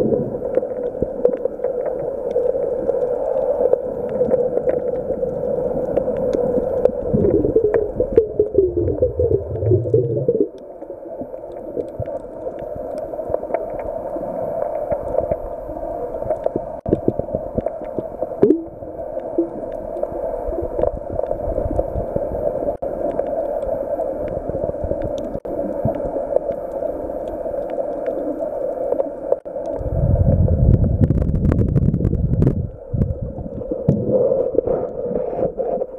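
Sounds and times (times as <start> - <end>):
low rumbling water movement: 0.0 - 35.9
muffled underwater drone: 0.0 - 35.9.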